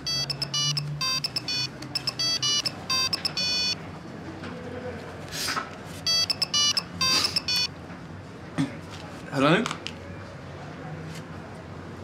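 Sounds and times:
phone keypad beeps: 0:00.0 - 0:03.8, 0:06.1 - 0:07.7.

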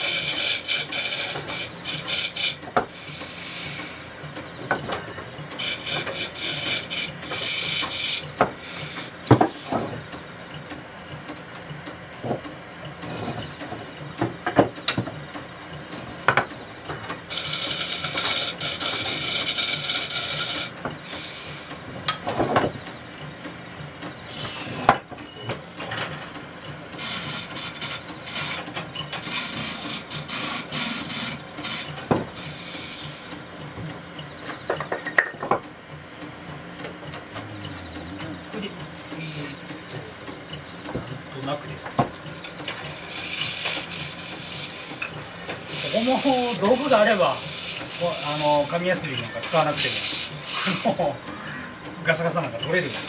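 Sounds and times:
lathe tool cutting spinning wood: 0:00.0 - 0:04.2, 0:05.6 - 0:10.1, 0:17.2 - 0:21.9, 0:26.9 - 0:33.6, 0:42.6 - 0:53.0
low steady hum: 0:35.8 - 0:41.9.

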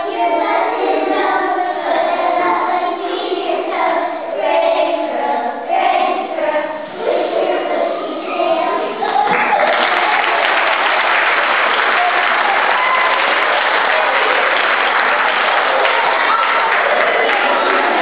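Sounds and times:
faint voices: 0:06.4 - 0:10.9, 0:11.9 - 0:18.0
audience applauding: 0:09.3 - 0:18.0.

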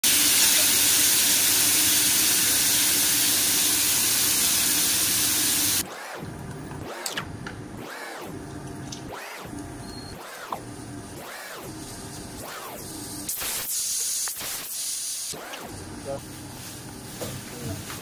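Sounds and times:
fish sizzling on a hot plate: 0:00.1 - 0:05.8.

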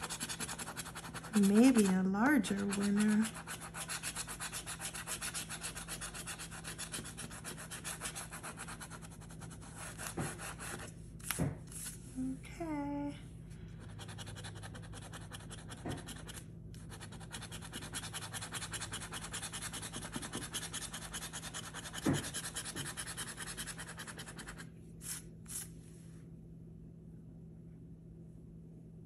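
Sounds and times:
coin scratching lottery ticket: 0:00.0 - 0:10.8, 0:13.9 - 0:24.6.

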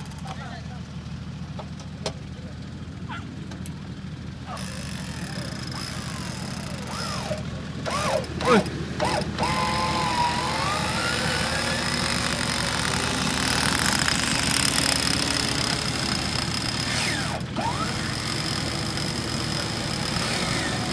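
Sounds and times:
engines running: 0:00.0 - 0:20.9
electric winch whining: 0:04.5 - 0:20.9.

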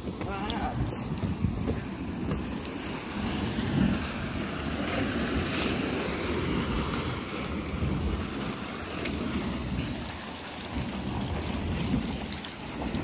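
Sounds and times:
hot spring water churning: 0:00.0 - 0:13.0.

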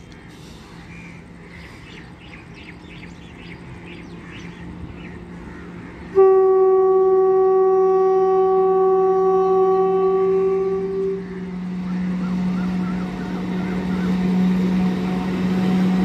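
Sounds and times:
locomotive horn blast: 0:06.1 - 0:16.0.

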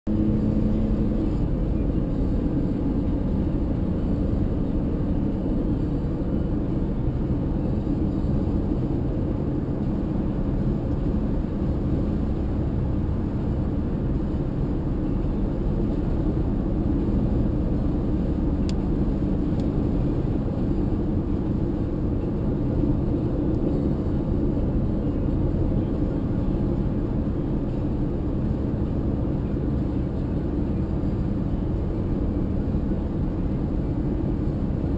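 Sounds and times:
car driving rumble: 0:00.1 - 0:34.9.

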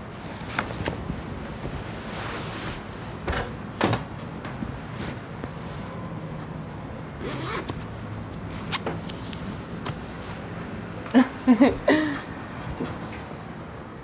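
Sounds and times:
zipper being pulled up: 0:07.2 - 0:07.8.

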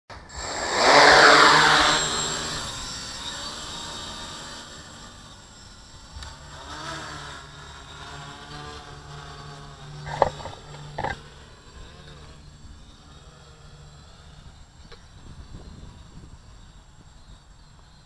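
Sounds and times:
quadcopter propellers whirring: 0:00.1 - 0:18.0.

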